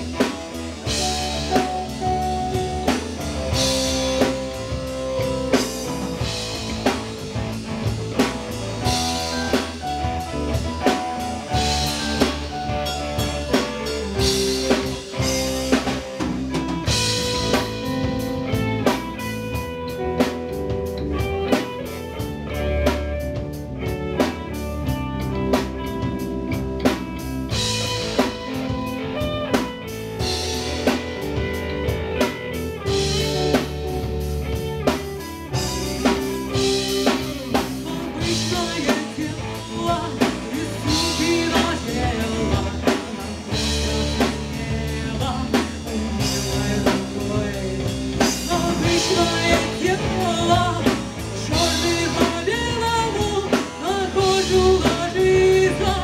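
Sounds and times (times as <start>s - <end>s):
bass guitar: 0.0s - 56.0s
drum kit beat: 0.0s - 56.0s
electric guitar: 0.0s - 56.0s
lead vocal singing: 37.0s - 56.0s.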